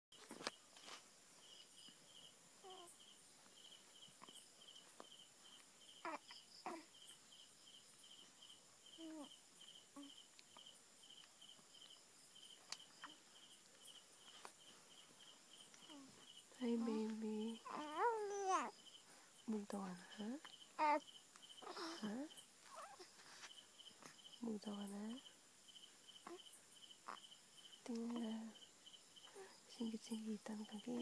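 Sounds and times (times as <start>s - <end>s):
faint rustles and clicks: 0.2s - 1.2s, 9.2s - 26.5s
cricket chirping: 0.2s - 31.0s.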